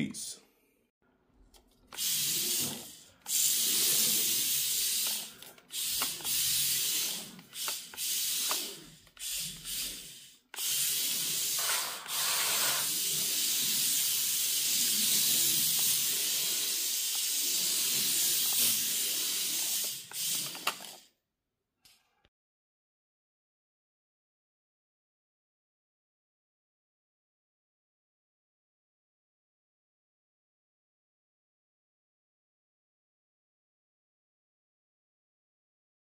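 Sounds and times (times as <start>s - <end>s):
rc car motor whirring: 1.9s - 21.1s.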